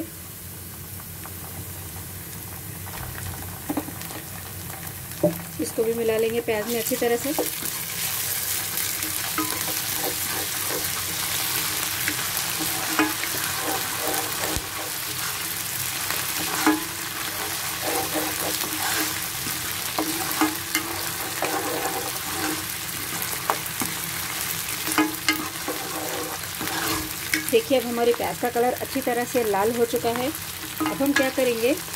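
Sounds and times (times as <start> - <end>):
onions sizzling in hot oil: 0.0 - 31.9
spatula scraping a pot: 9.0 - 24.0, 24.7 - 27.5.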